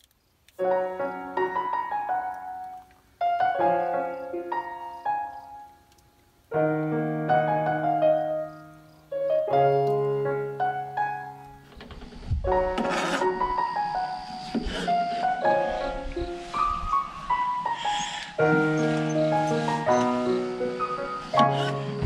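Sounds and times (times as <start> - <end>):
solo piano music: 0.6 - 11.8, 12.4 - 22.0.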